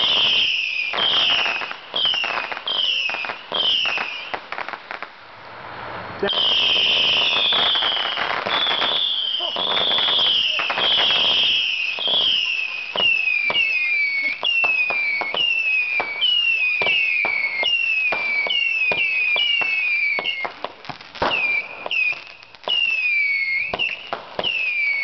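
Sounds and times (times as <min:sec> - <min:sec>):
rockets whistling: 0:00.0 - 0:05.1, 0:06.0 - 0:25.0.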